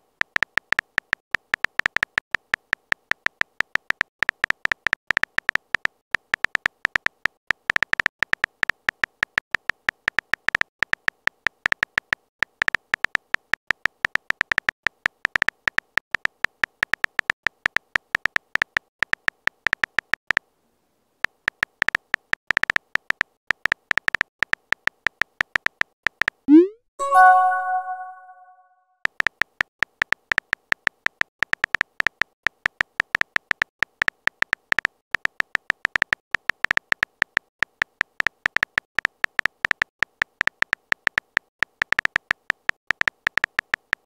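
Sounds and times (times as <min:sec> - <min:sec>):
keyboard typing clicks: 0:25.2 - 0:28.6.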